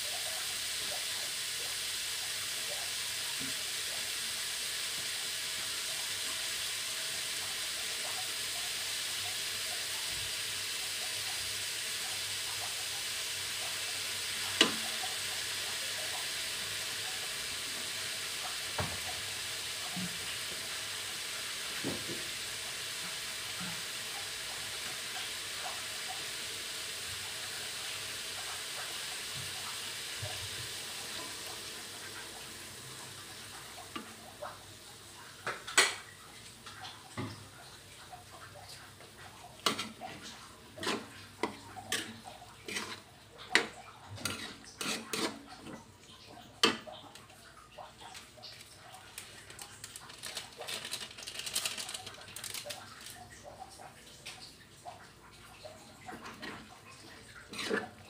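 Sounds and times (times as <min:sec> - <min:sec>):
vegetables sizzling in a wok: 0:00.0 - 0:45.7, 0:47.8 - 0:53.3, 0:56.1 - 0:58.0
metal spatula scraping wok: 0:40.8 - 0:45.4, 0:57.5 - 0:58.0.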